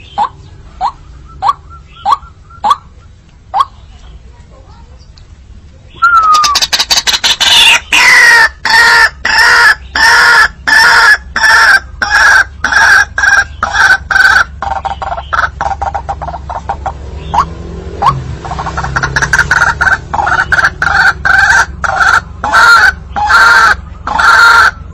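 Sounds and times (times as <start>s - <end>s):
waterhen harsh calls: 0.0s - 3.9s, 6.0s - 24.8s.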